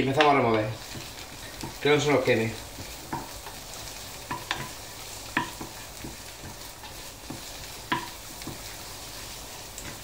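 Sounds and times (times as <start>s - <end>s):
food sizzling in a pan: 0.0s - 10.0s
wooden spoon scraping a pan: 0.0s - 10.0s
spoon knocking against pan: 2.8s - 3.6s, 4.3s - 6.6s, 7.2s - 8.7s.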